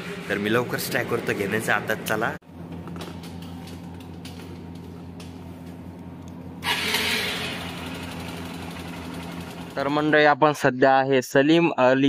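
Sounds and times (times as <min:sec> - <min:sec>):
motorcycle engine idling: 0:06.6 - 0:10.2.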